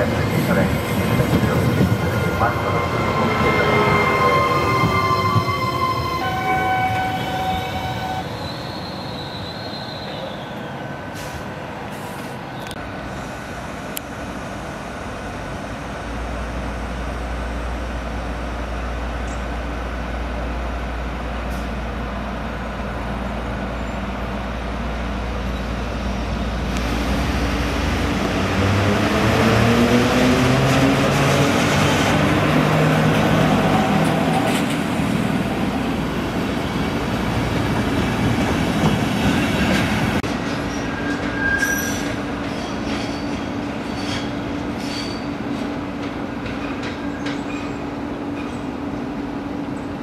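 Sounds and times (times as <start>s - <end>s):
electric train whine: 0.0s - 11.1s
steady hum of standing trains: 0.0s - 50.0s.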